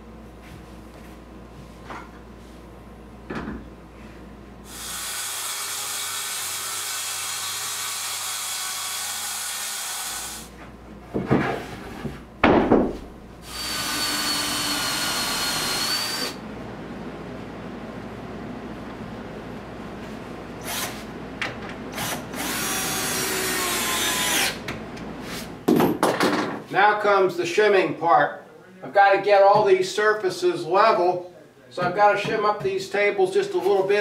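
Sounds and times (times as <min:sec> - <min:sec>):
circular saw cutting: 0:04.7 - 0:10.5, 0:13.5 - 0:16.4
loud knocks: 0:12.4 - 0:13.1.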